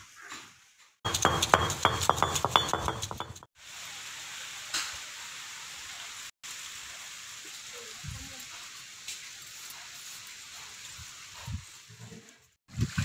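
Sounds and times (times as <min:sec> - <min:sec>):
stone grinding roller clattering: 0:01.1 - 0:03.5.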